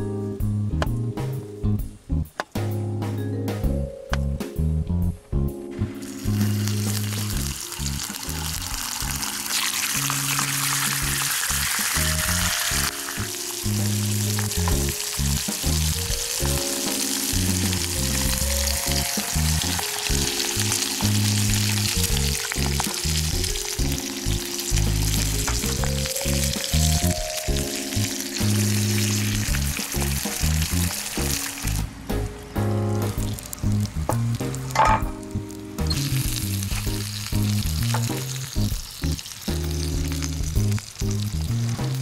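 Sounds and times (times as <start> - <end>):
background music: 0.0 - 42.0
bacon sizzling in a skillet: 5.9 - 31.9, 33.1 - 42.0.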